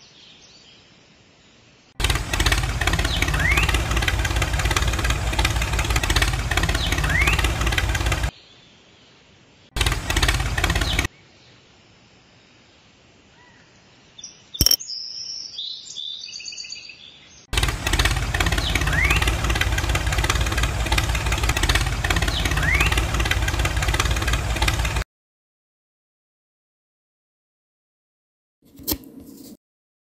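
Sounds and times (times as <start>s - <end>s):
tractor engine chugging: 2.0s - 8.3s, 9.8s - 11.1s, 17.5s - 25.0s
sharp click: 14.6s - 14.8s
short rising chirps: 14.6s - 14.8s
high chirping tones: 14.6s - 14.9s.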